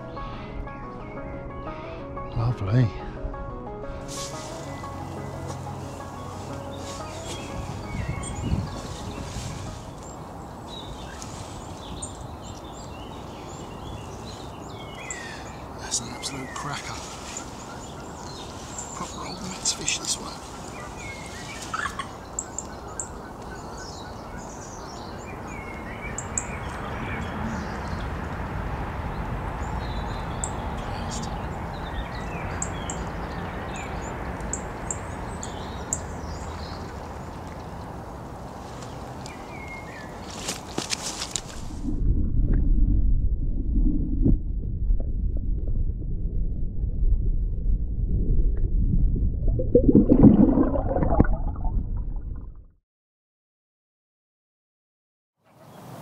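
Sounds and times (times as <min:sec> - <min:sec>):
birds chirping: 0:04.2 - 0:28.3, 0:29.1 - 0:38.0, 0:38.7 - 0:41.6
birds warbling: 0:04.5 - 0:28.0
water bubbling and churning: 0:41.5 - 0:52.7
low outdoor rumble: 0:41.6 - 0:52.6.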